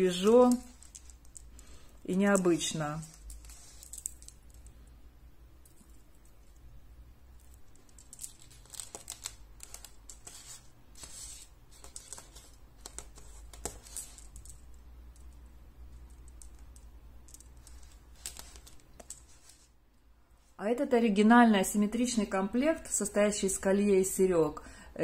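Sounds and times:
low steady hum: 0.0s - 25.0s
glass beads clicking: 0.1s - 4.8s, 13.8s - 18.0s.

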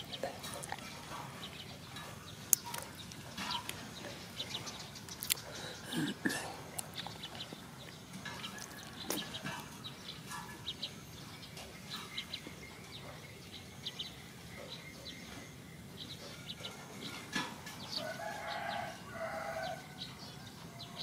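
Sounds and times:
small birds chirping: 0.0s - 21.0s
rooster crowing: 18.0s - 21.0s.

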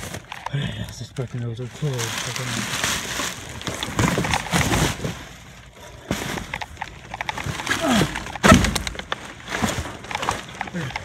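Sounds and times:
crackles and knocks: 0.0s - 11.0s
plastic bags rustling and crinkling: 0.0s - 11.0s.

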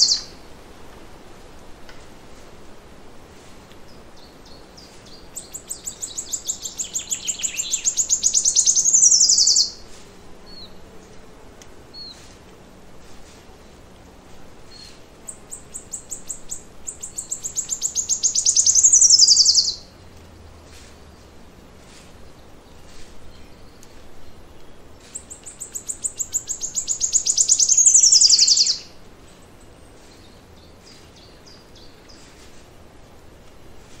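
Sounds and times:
faint chirps of other birds: 0.0s - 0.4s, 3.4s - 11.3s, 11.9s - 12.4s, 14.6s - 32.8s
songbird singing: 0.0s - 0.4s, 3.6s - 34.0s.

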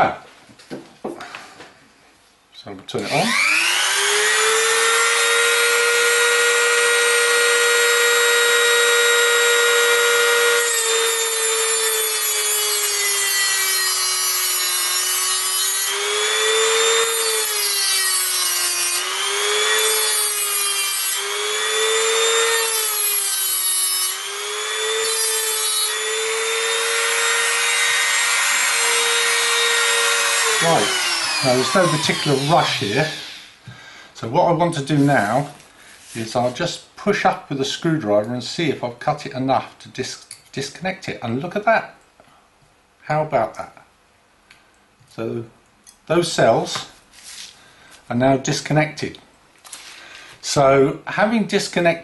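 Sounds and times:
cutting disc grinding metal: 3.0s - 33.6s
rotary tool whining: 3.0s - 33.6s.

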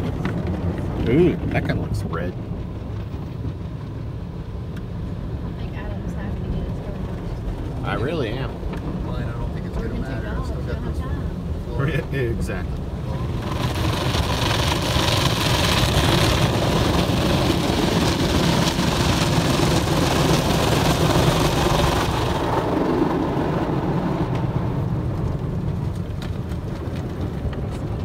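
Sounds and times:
car wash low rumble: 0.0s - 28.0s.

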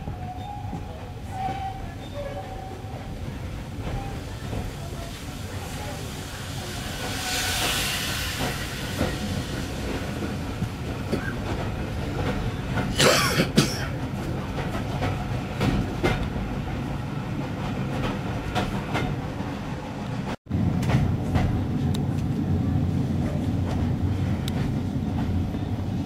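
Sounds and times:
train passing alongside: 0.0s - 26.0s
train wheels rumbling: 0.0s - 26.0s
steam locomotive hiss: 3.8s - 11.1s.

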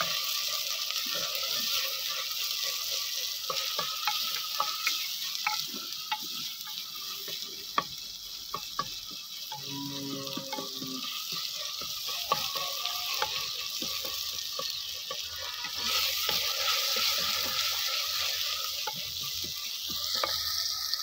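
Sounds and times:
masala sizzling in a pot: 0.0s - 21.0s.

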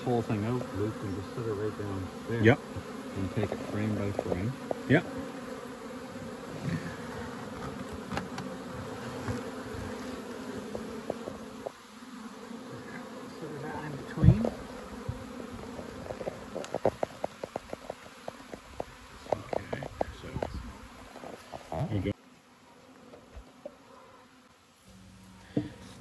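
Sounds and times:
bee buzzing past close: 0.0s - 26.0s
bees buzzing in a swarm: 0.0s - 26.0s.

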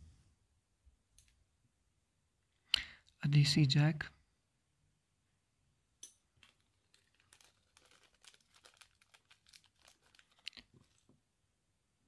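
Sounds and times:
plastic bag crinkling: 6.3s - 11.2s.

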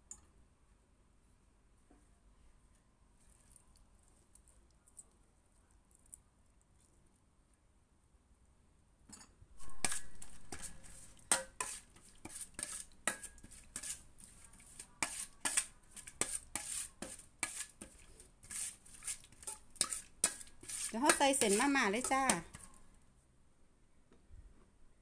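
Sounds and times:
metal spoon scraping a steel bowl: 9.6s - 22.8s.

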